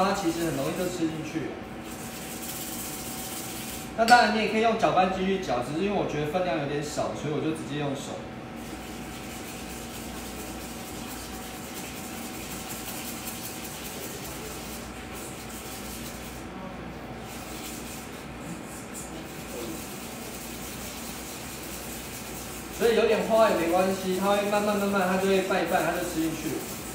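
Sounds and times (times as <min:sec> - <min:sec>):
stirring and scraping in a bowl: 0:00.0 - 0:04.3, 0:08.5 - 0:26.9.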